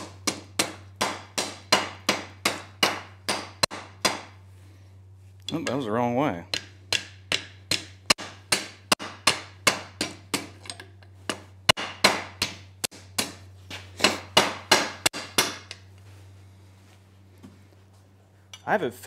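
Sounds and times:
wooden block striking hot steel: 6.5 - 13.4.

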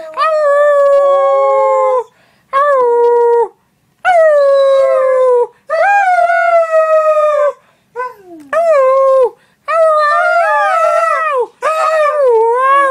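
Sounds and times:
dog howling: 4.1 - 12.9.

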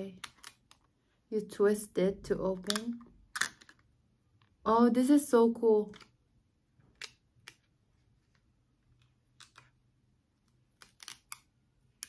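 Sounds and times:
plastic compact clicks and taps: 2.6 - 3.8.

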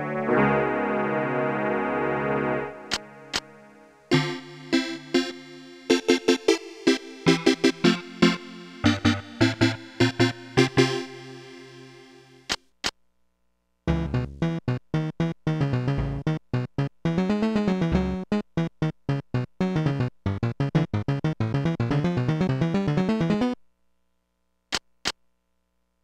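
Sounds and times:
electronic keyboard notes: 0.0 - 12.4, 13.9 - 23.6
low bass notes: 13.9 - 14.8, 15.6 - 16.8, 17.6 - 18.3.

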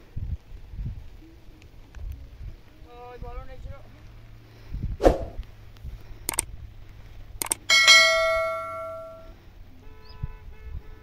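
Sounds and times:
faint steady ringing tone: 7.4 - 9.4
metal object struck ringing: 7.7 - 9.3.

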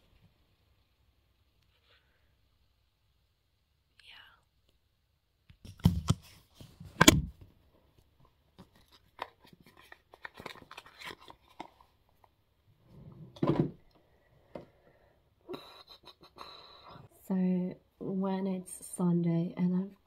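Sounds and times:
paper-like rustles: 8.6 - 12.0.

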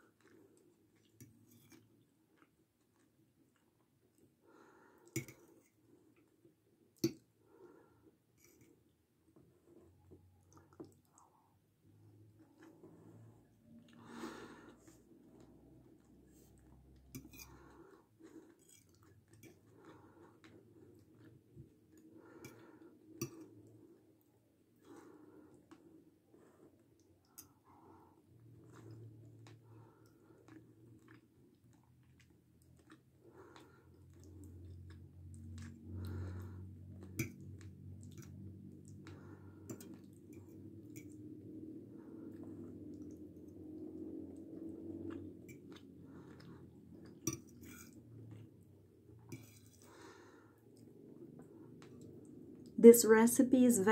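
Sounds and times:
breathing: 4.4 - 6.2, 7.4 - 8.6, 12.8 - 15.1, 17.3 - 18.8, 19.6 - 21.1, 22.0 - 24.1, 24.8 - 26.9, 27.6 - 30.6, 33.2 - 34.6, 35.8 - 36.9, 39.0 - 40.7, 45.9 - 47.0, 49.3 - 51.8
person chewing: 13.8 - 24.1, 28.4 - 41.5, 42.2 - 52.7
fork scraping on plate: 17.1 - 17.6, 47.3 - 48.0.

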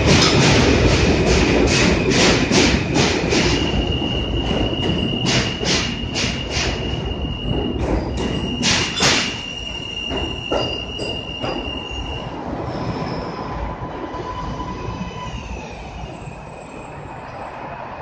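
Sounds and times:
subway train passing: 0.0 - 18.0
high wheel squeal: 3.4 - 13.5.

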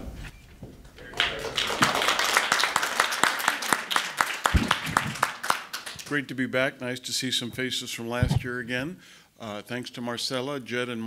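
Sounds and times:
audience applauding: 1.0 - 6.1.

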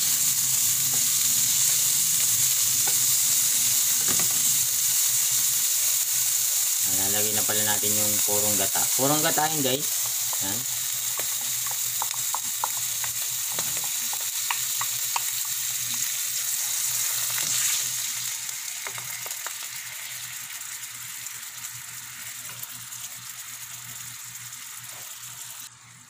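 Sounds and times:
coconut milk sizzling in a pan: 0.0 - 26.0.

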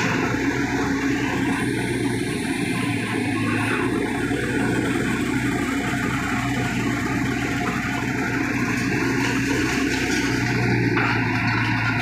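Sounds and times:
excavator diesel engine humming: 0.0 - 12.0.

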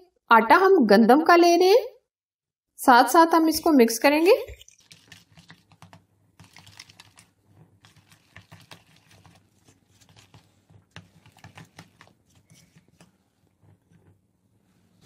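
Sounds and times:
spoon scraping plastic bowl: 4.5 - 14.2.

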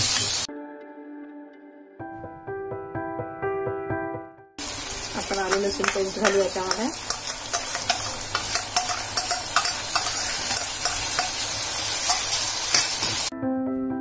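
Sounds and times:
vegetables sizzling in oil: 0.0 - 0.5, 4.6 - 13.3
spoon clinking and scraping pan: 5.1 - 13.3.

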